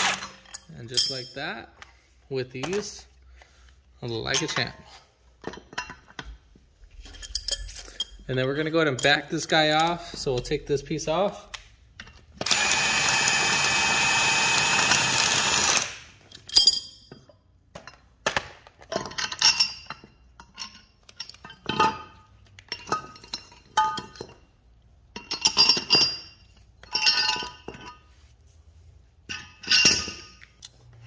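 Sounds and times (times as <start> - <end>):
impact wrench spinning: 0.0 - 0.5, 12.4 - 16.2
metallic clinks and rattles: 5.4 - 9.4, 16.2 - 18.0, 25.1 - 28.1, 29.3 - 31.0.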